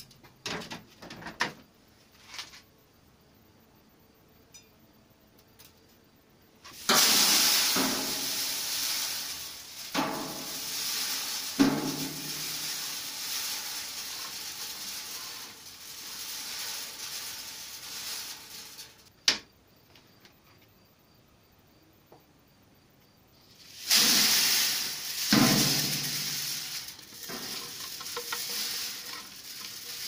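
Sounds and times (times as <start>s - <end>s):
pollen pellets pouring onto metal: 6.7s - 19.1s, 23.5s - 30.0s.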